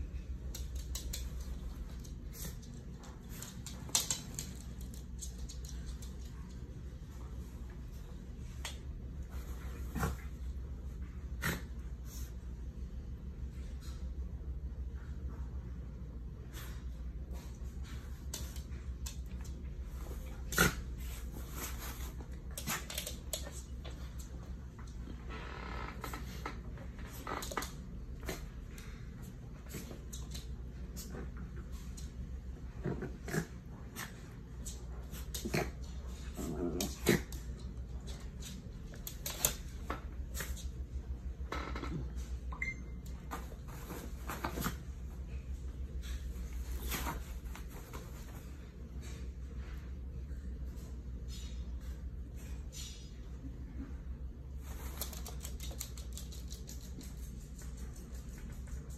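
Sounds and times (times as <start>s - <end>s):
dog claws clicking on wooden floor: 0.4s - 6.6s, 22.5s - 23.7s, 54.9s - 58.9s.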